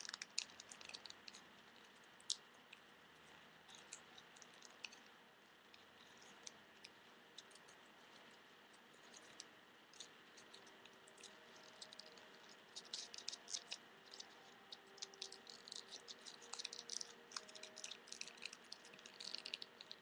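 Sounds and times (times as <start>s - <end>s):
paper crinkling and clicking: 9.1s - 20.0s.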